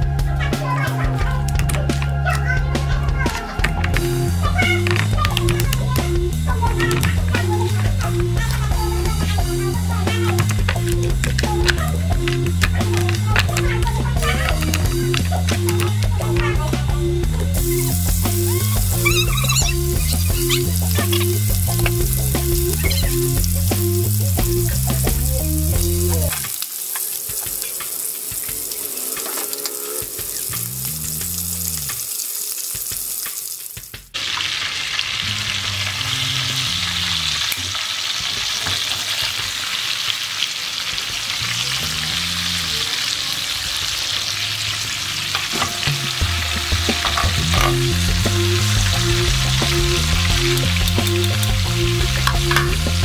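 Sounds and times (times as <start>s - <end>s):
music with low beat: 0.0s - 26.5s, 45.6s - 53.0s
chicken sizzling in oil: 0.0s - 53.0s.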